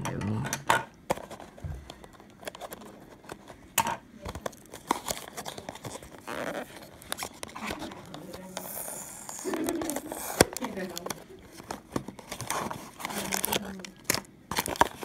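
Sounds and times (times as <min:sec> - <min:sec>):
cardboard box scraping and crinkling: 0:04.8 - 0:10.9.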